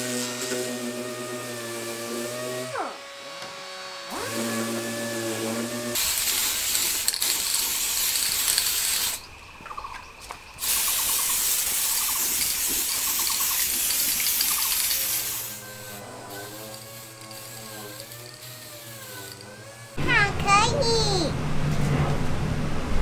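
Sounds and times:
electric power sander: 0.0 - 9.2, 13.5 - 20.0
aerosol spray can hissing: 6.0 - 9.2, 10.6 - 19.4
rattling ticks from spray can: 6.0 - 9.2, 10.6 - 15.6, 16.3 - 19.5.

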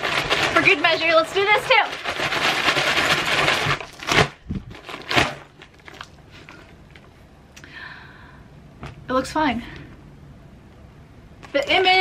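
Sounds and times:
fabric bag crinkling: 0.0 - 7.1.

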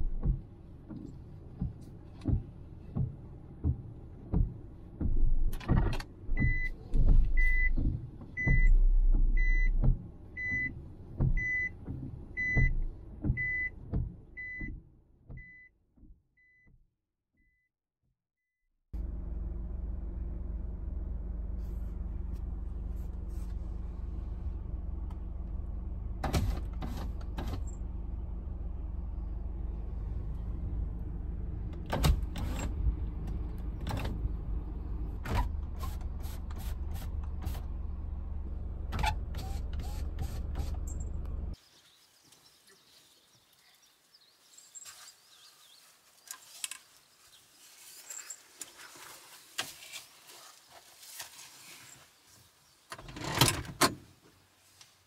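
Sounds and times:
car engine idling: 19.0 - 41.6.

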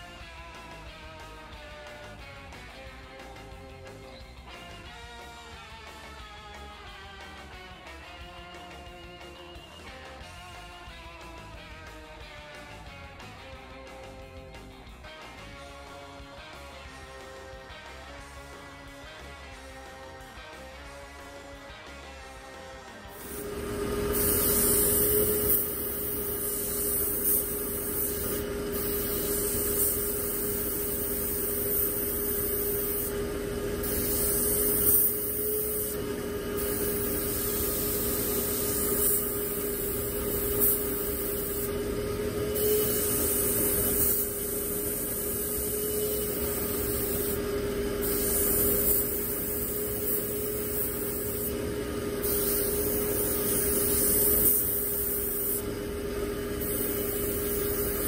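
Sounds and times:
air compressor hum: 23.1 - 58.0
airbrush air hiss: 23.1 - 58.0.

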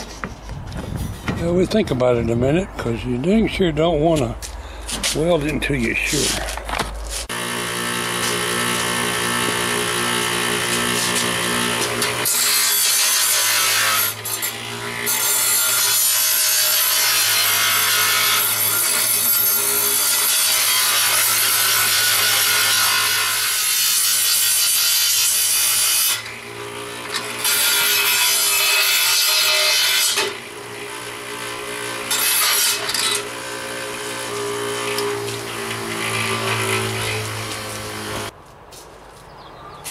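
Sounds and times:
steel grinding rasp: 7.1 - 38.3
bench grinder motor hum: 7.2 - 13.9, 30.4 - 38.3.

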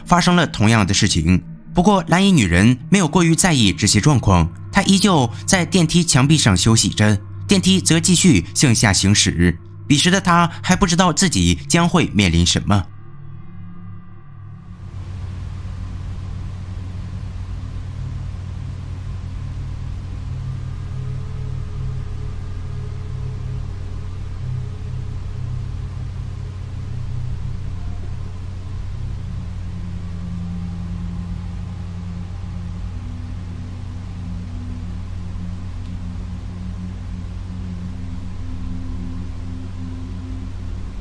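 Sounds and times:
low rumbling drone: 0.0 - 10.6, 12.9 - 41.0
faint wavering tones: 13.1 - 41.0.

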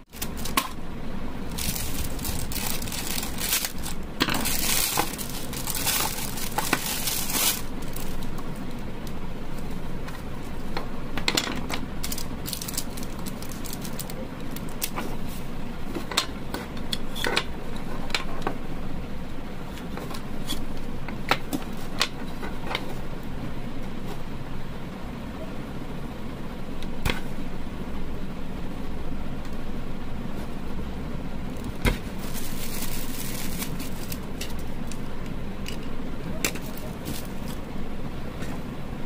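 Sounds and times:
plastic bag crinkling: 0.0 - 0.8, 1.5 - 8.5, 12.0 - 15.0, 31.6 - 35.0, 36.6 - 37.6.

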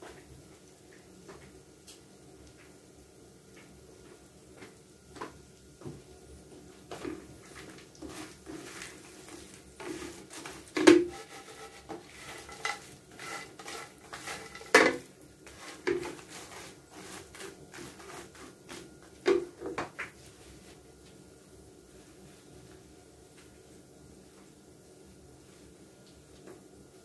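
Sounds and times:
spatula scraping frying pan: 7.5 - 19.2.

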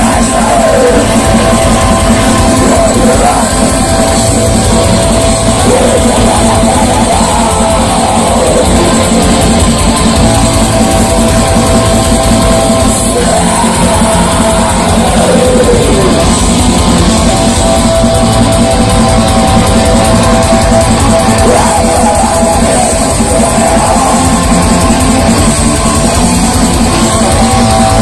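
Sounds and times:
bass guitar: 0.0 - 28.0
distorted electric guitars: 0.0 - 28.0
drum kit: 0.0 - 28.0.

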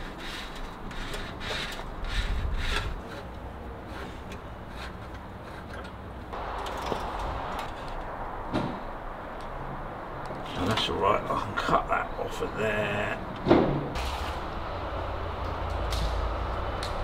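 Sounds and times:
wire scraping: 0.0 - 8.1.

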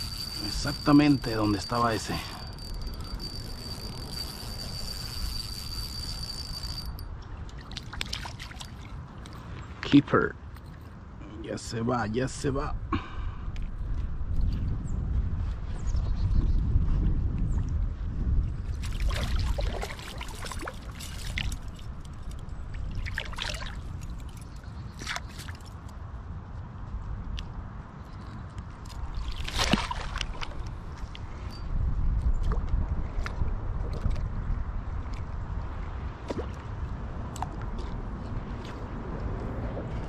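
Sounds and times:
high-pitched insect trill: 0.0 - 7.1
water splashing and trickling: 5.1 - 9.6, 18.7 - 25.9, 28.8 - 30.8.

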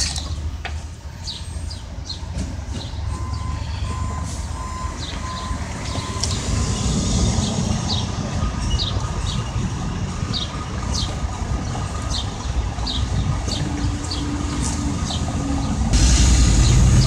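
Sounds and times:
large vehicle engine rumble: 0.0 - 17.0
reversing alarm beeping: 1.6 - 10.9.

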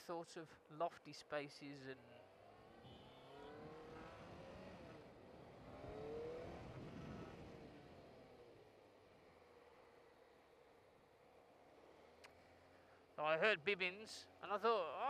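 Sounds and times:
faint motorcycle engine accelerating: 2.0 - 10.6.

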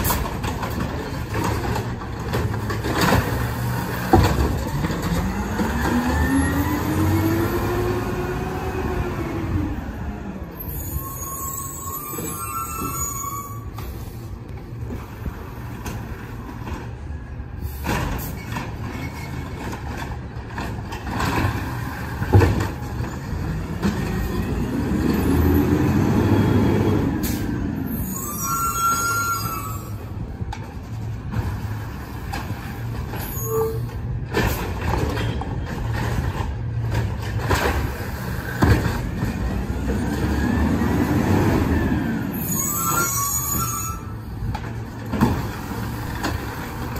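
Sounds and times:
diesel engine of refuse truck: 0.0 - 46.9
short high squeals: 10.6 - 14.2, 27.3 - 30.0, 42.3 - 44.3.

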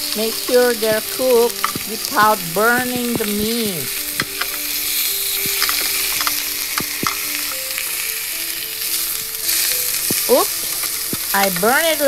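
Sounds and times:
steaks sizzling in a grill pan: 0.0 - 12.0
metal tongs clicking: 0.3 - 7.5.

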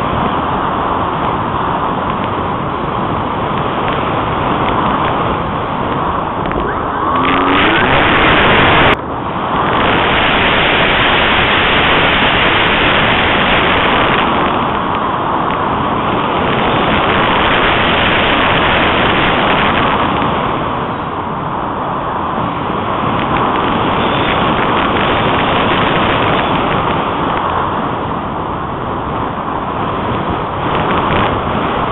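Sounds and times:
wind rushing over microphone: 0.0 - 31.9.

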